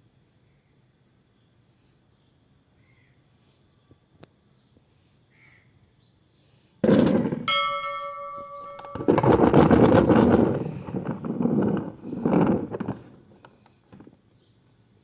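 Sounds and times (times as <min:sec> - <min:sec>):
bell-like ring: 0:07.5 - 0:09.9
rubber balls clattering in plastic tub: 0:08.8 - 0:13.3.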